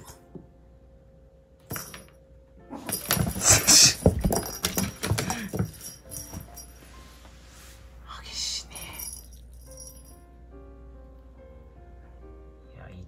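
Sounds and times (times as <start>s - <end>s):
rustling and rattling toys: 2.7s - 7.0s.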